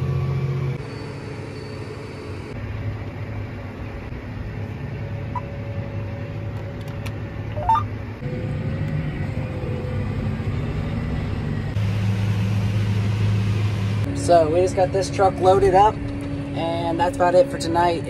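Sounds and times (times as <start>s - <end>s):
tractor diesel engine running: 0.0s - 18.0s
short rising chirp: 7.5s - 7.9s.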